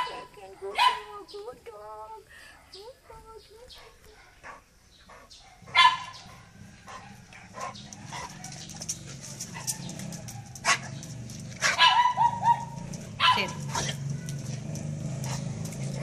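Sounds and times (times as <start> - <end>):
dog barking: 0.0 - 1.2, 3.8 - 8.7, 9.5 - 11.0, 11.6 - 14.6.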